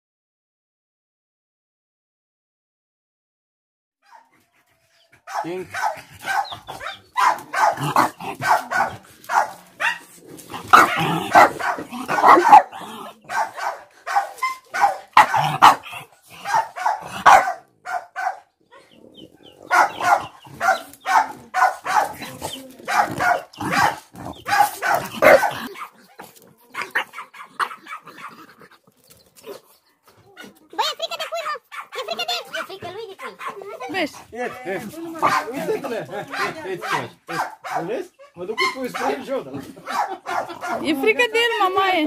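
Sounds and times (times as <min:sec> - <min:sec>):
puppy barking and yipping: 0:04.0 - 0:18.9, 0:19.6 - 0:28.6, 0:29.4 - 0:34.0, 0:35.2 - 0:39.2, 0:39.8 - 0:40.9.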